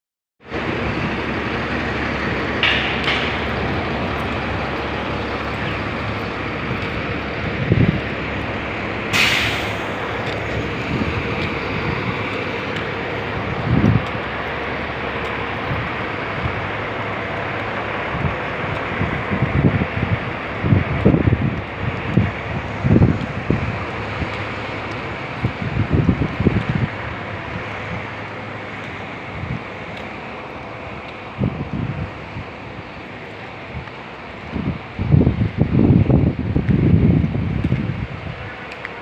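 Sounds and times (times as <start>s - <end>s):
bus engines droning: 0.4s - 39.0s
air brake hiss: 9.1s - 10.0s.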